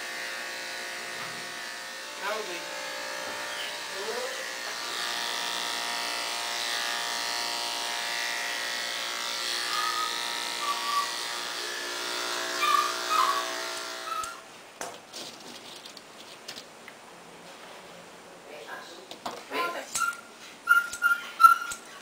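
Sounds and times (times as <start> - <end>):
electric clippers humming: 0.0 - 14.4
short high squeaks: 9.8 - 11.2, 12.6 - 14.4, 20.0 - 21.8.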